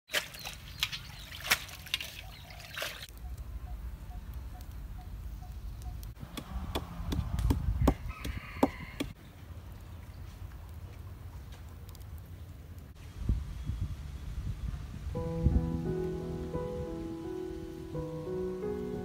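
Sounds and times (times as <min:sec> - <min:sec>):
water splashing: 0:00.1 - 0:03.1
wooden pestle knocking in mortar: 0:06.3 - 0:09.2
rooster crowing: 0:07.8 - 0:09.2.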